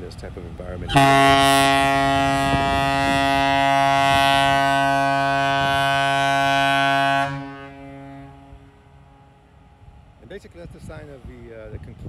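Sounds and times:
boat horn long blast: 0.9s - 9.8s.

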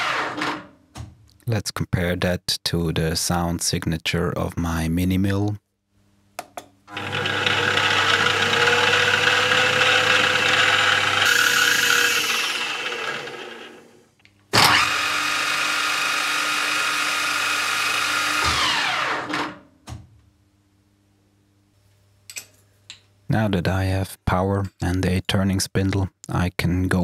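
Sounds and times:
mill spindle whining: 0.0s - 0.7s, 6.9s - 19.5s.

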